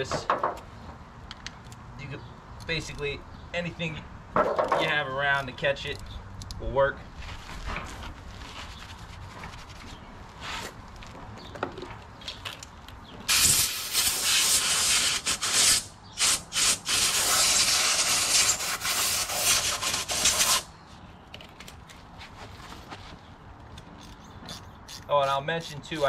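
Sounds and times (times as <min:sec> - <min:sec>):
compressed air hissing from blow gun: 0:13.3 - 0:20.7.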